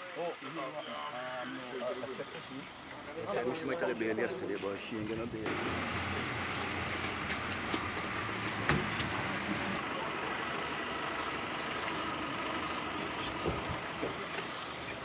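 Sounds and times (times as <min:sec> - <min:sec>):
motor vehicle running: 0:05.4 - 0:15.0.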